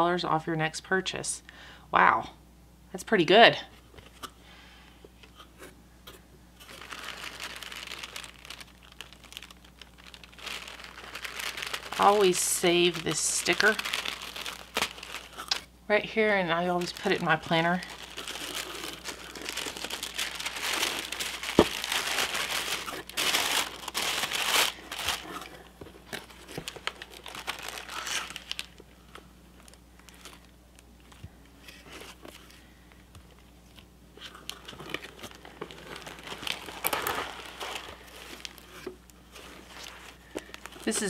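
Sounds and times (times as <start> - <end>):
packaging rustling: 5.3 - 41.0
tissue paper rustling: 6.6 - 15.6, 16.4 - 30.5, 34.2 - 41.0.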